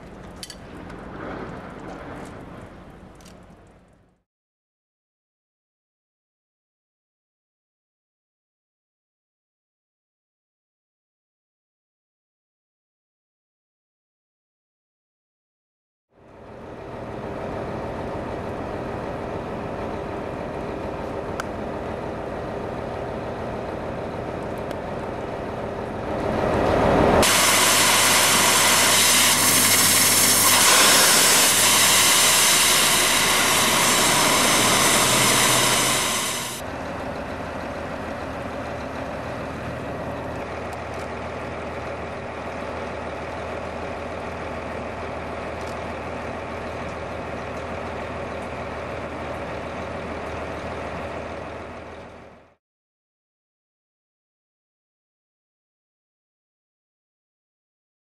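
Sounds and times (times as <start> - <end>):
water jet hissing: 27.2 - 36.6
water-jetting pump running: 27.2 - 38.6.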